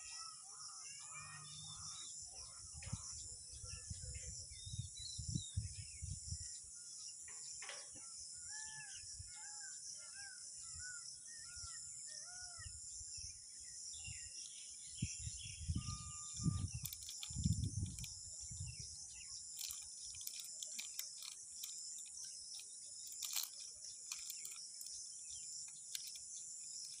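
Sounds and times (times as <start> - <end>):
high-pitched insect drone: 0.0 - 4.6, 13.9 - 27.0
faint clicks: 19.6 - 25.0, 25.7 - 27.0.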